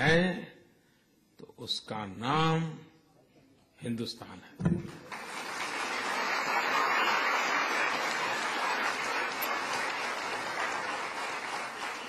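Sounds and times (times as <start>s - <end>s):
audience applauding: 4.9s - 12.0s.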